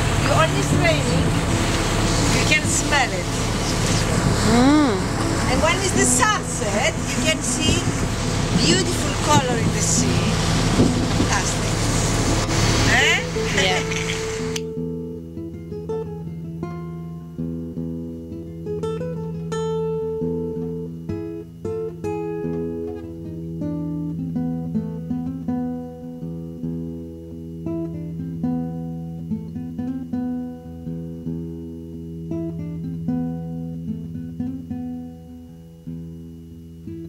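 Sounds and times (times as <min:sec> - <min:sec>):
steady low drone: 0:00.0 - 0:14.6
plucked guitar melody: 0:00.0 - 0:37.0.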